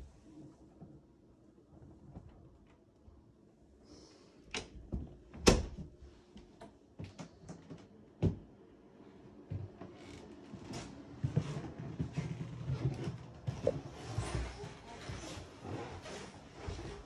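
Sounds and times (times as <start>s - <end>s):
closet door shutting: 4.5s - 5.8s.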